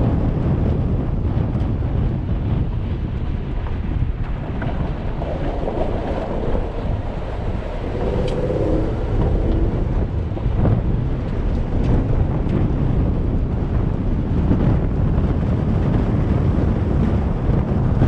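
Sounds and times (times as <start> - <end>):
wind buffeting microphone: 0.0 - 18.0
engine rumble: 2.0 - 18.0.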